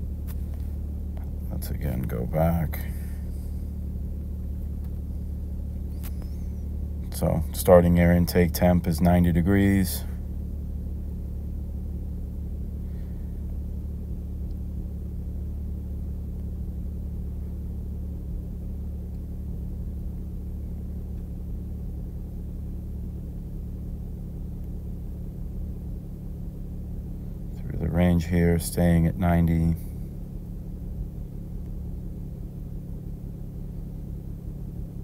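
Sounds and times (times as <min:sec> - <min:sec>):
machine humming: 0:00.0 - 0:09.4.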